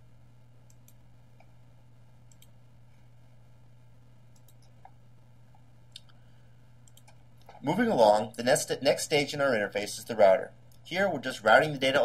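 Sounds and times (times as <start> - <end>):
steady low hum: 0.0 - 12.0
computer mouse clicks: 0.7 - 1.6, 2.3 - 2.6, 4.3 - 5.0, 6.8 - 7.6.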